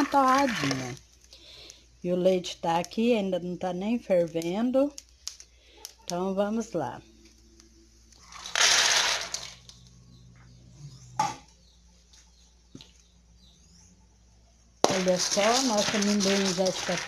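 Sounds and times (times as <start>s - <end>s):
nuts poured into metal bowl: 0.0s - 1.0s, 8.3s - 9.6s, 14.8s - 17.0s.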